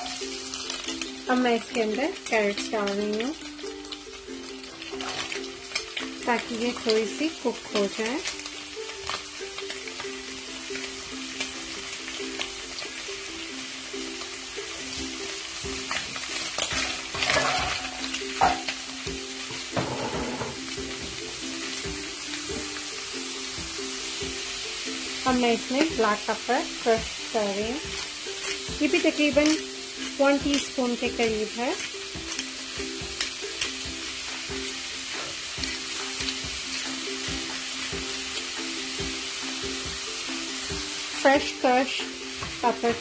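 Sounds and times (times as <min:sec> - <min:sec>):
food sizzling in oil: 0:00.0 - 0:43.0
soft background music: 0:00.0 - 0:43.0
spatula scraping a wok: 0:04.8 - 0:05.5, 0:16.4 - 0:18.8.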